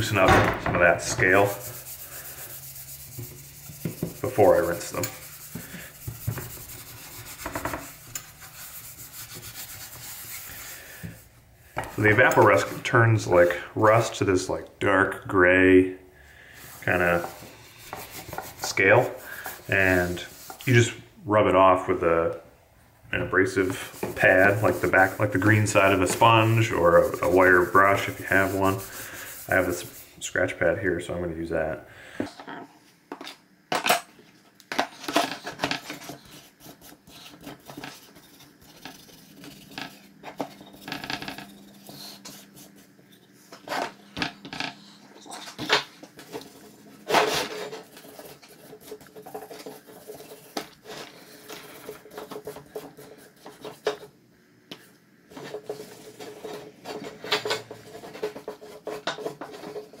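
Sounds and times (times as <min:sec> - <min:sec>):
scratch pad scrubbing metal: 0:00.9 - 0:11.0, 0:23.5 - 0:30.0.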